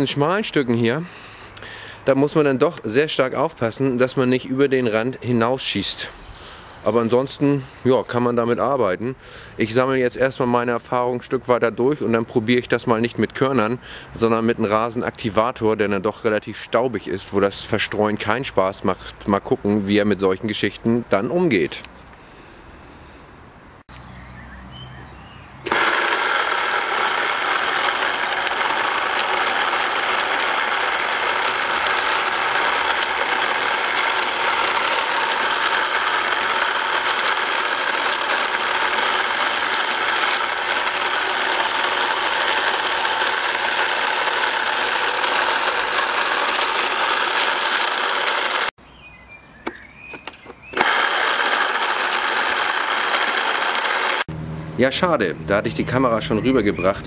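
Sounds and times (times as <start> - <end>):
electric spreader motor whirring: 25.6 - 48.7, 50.7 - 54.3.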